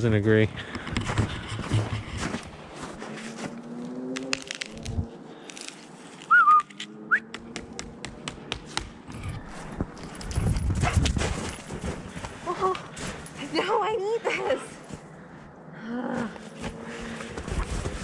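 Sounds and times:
footsteps crunching in snow: 0.5 - 6.4, 9.4 - 13.8, 16.3 - 18.0
person whistling for a dog: 6.3 - 7.3.

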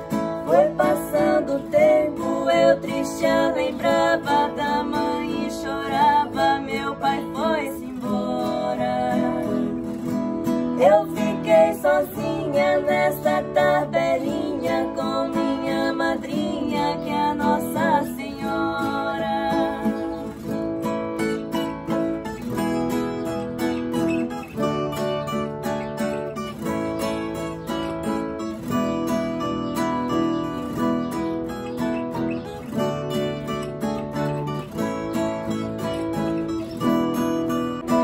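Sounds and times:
acoustic guitar: 0.0 - 38.0
women singing in duet: 0.1 - 20.4.

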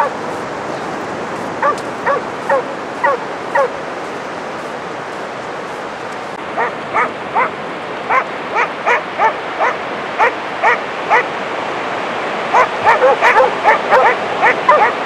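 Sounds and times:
surf rushing: 0.0 - 15.0
dog barking sharply: 1.6 - 3.8, 6.6 - 11.3, 12.6 - 15.0.

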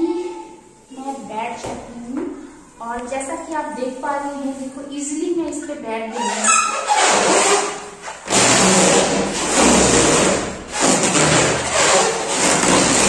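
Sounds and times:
balloon squeaking and rubbing: 6.1 - 13.0.

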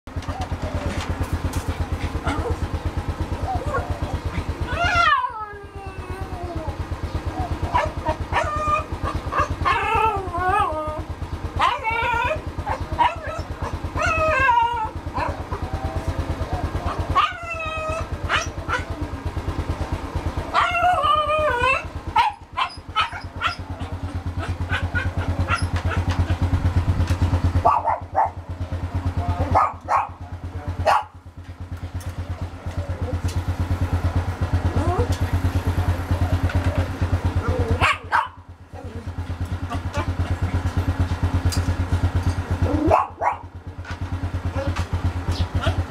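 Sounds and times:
engine idling: 0.1 - 45.9
small dog whining: 3.4 - 11.0, 11.6 - 15.8, 34.7 - 35.2
dog barking: 7.7 - 9.6, 12.7 - 14.2, 18.3 - 18.9, 21.7 - 26.1, 27.6 - 28.4, 29.5 - 30.2, 30.8 - 31.2, 37.8 - 38.4, 42.7 - 43.5.

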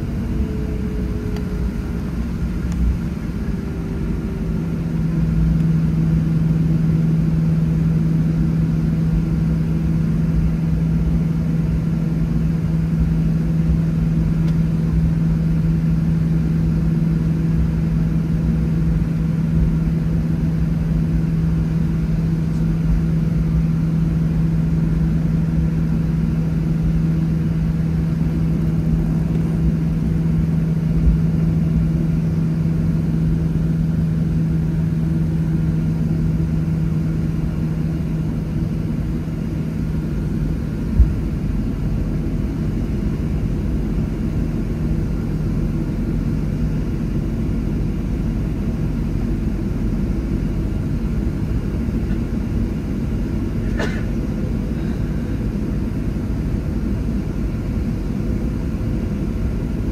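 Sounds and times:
low uneven rumble: 0.0 - 46.2
jet engine hum: 0.0 - 59.9.

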